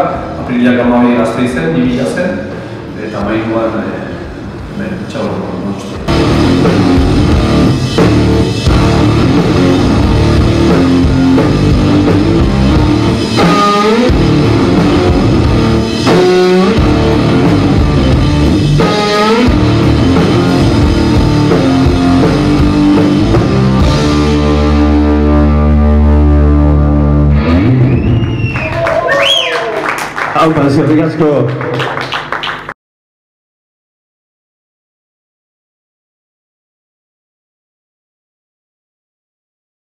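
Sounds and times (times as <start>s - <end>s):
drum kit: 5.9s - 28.8s
electric guitar: 5.9s - 29.0s.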